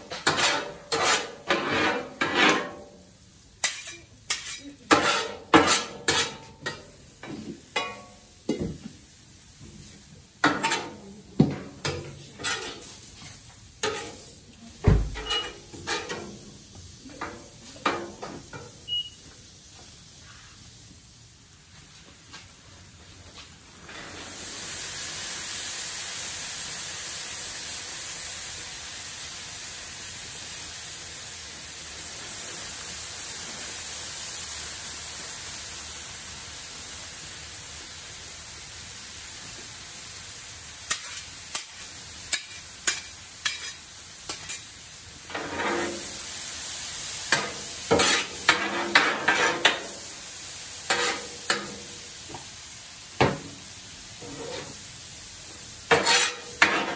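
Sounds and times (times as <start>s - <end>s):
metal spatulas scraping griddle: 0.0s - 3.0s, 3.6s - 6.9s, 10.4s - 11.0s, 11.6s - 14.3s, 15.1s - 16.4s, 40.9s - 44.7s, 45.3s - 46.2s, 47.3s - 50.0s, 50.9s - 51.9s, 54.2s - 54.8s, 55.9s - 56.9s
vegetables sizzling on griddle: 0.0s - 56.9s.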